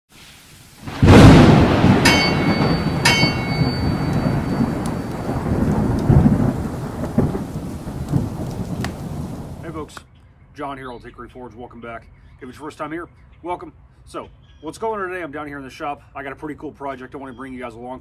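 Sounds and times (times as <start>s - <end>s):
steady rain: 0.1s - 9.9s
thunder rumbling: 0.8s - 9.9s
ringing metallic strikes: 1.8s - 6.0s.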